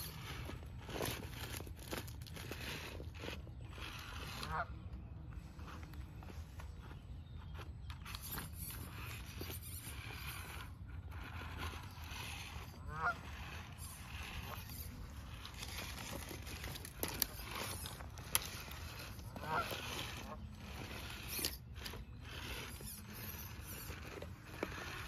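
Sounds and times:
goose honking: 12.8s - 13.4s, 19.3s - 20.4s.

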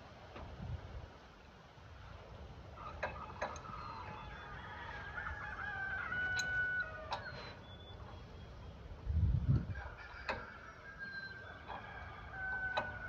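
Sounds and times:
rooster crowing: 2.8s - 7.6s, 9.5s - 13.0s.

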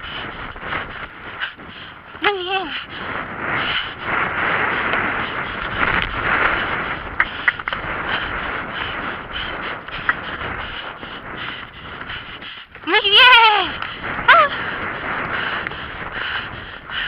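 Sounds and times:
horse hoofbeats cantering: 0.0s - 17.0s
wind on microphone: 0.0s - 17.0s
sharp clicks: 7.2s - 7.9s.

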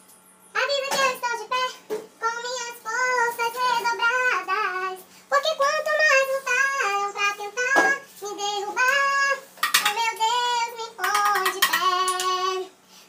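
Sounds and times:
high voice singing: 0.6s - 12.8s.

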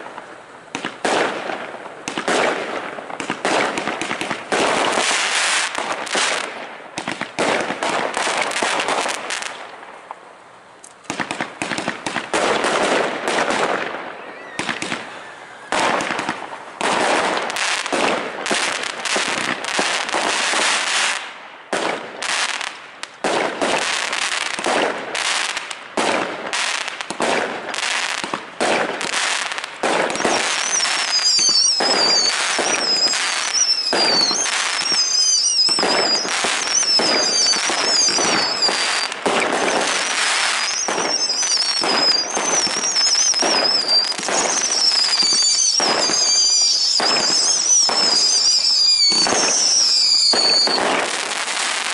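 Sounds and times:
fireworks bangs and crackling: 0.0s - 51.9s
high wavering firework whistles: 13.6s - 16.4s, 29.1s - 51.9s.

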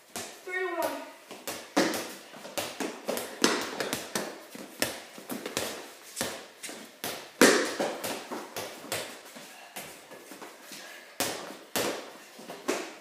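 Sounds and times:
sneaker steps: 0.0s - 13.0s
basketball bouncing on concrete: 0.2s - 6.4s.

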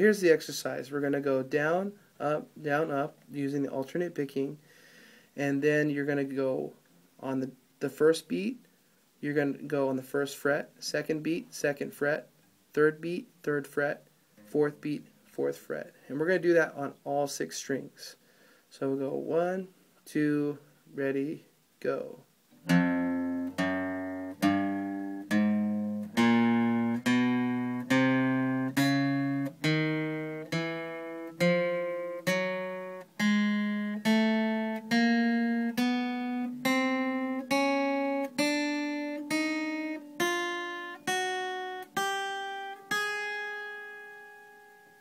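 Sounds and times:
acoustic guitar single plucked notes: 22.5s - 45.0s.

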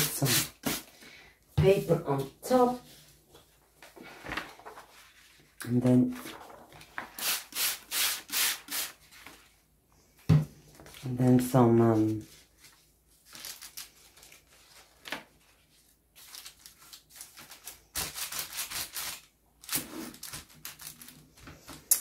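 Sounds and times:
paper rustling and crinkling: 2.2s - 7.5s, 8.9s - 9.6s, 10.7s - 22.0s.

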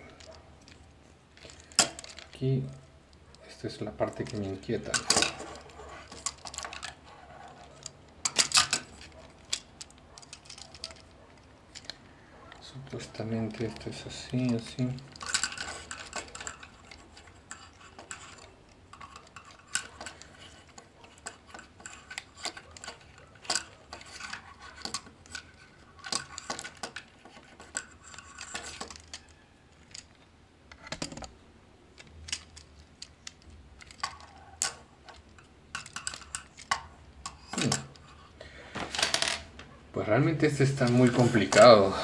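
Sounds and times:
plastic toy parts clicking: 4.0s - 12.6s, 13.4s - 31.3s, 31.9s - 38.2s.

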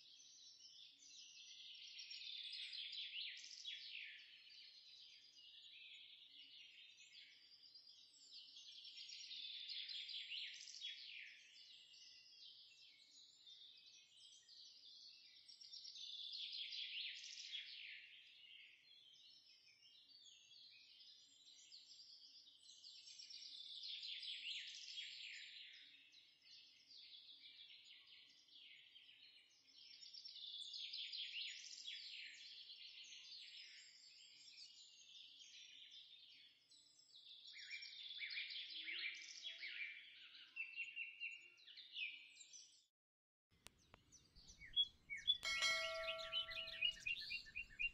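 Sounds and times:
birds twittering: 44.4s - 47.9s.

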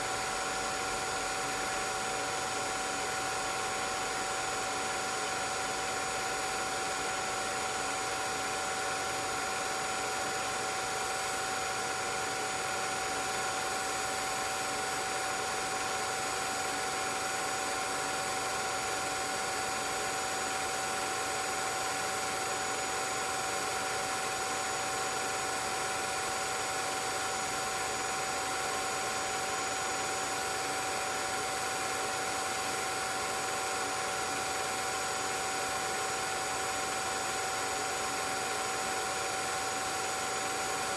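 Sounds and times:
film projector whirring: 0.0s - 40.9s.

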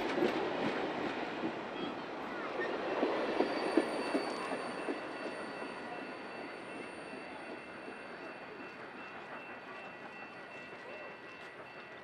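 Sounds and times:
railroad wheel rumble: 0.0s - 12.0s
high-pitched wheel squeal: 3.4s - 4.7s.

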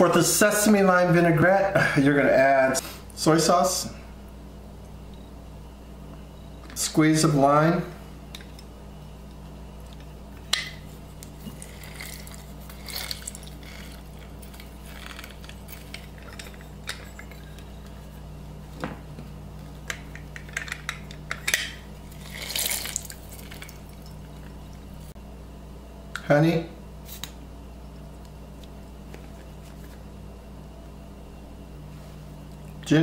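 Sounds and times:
wet squeezing: 11.1s - 15.4s, 22.1s - 24.9s.

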